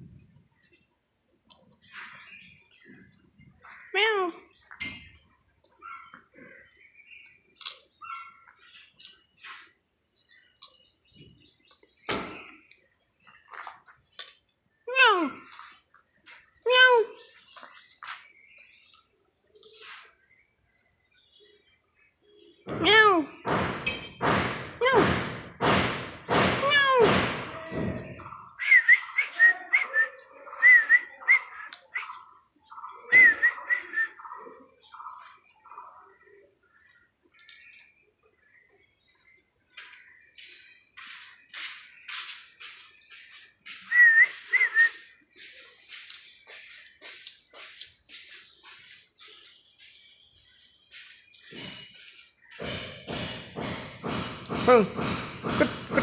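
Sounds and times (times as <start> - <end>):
sharp knock: 22.7 - 28.2, 52.5 - 56.0.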